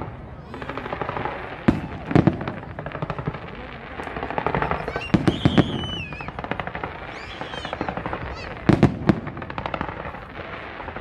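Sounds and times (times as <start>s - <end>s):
fireworks bangs: 0.0s - 11.0s
fireworks crackling: 0.0s - 11.0s
high wavering whistle: 5.0s - 6.3s.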